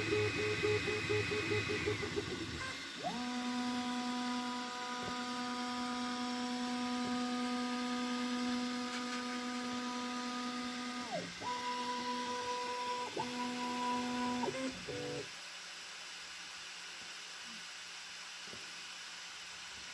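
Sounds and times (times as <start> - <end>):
stepper motors whining: 0.0 - 15.3.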